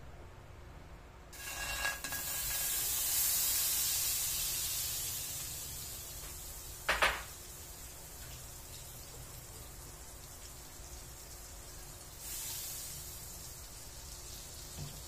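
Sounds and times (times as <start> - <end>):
butter sizzling in a wok: 1.3 - 15.0
spatula clinking: 1.4 - 2.8
clatter against a wok: 1.4 - 2.9.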